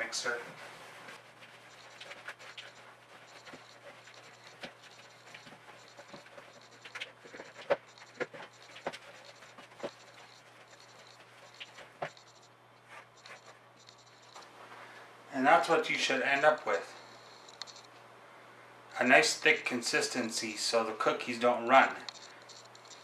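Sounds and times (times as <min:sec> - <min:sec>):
dough squishing: 0:00.0 - 0:17.8.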